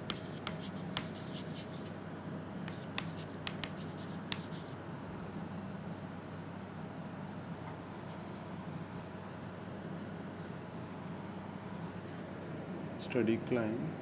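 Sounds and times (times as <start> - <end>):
chalk scratching on chalkboard: 0.0 - 1.9, 2.7 - 4.8
low room hum: 0.0 - 14.0.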